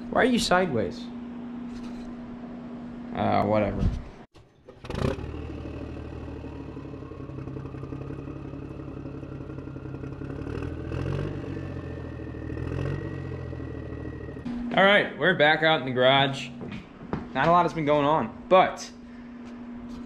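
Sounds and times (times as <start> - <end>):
engine running with rising whine: 4.4 - 16.6.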